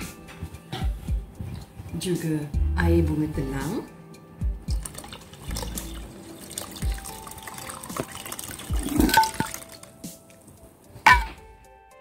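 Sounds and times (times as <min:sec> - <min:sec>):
water trickling through strainer: 0:04.7 - 0:10.0.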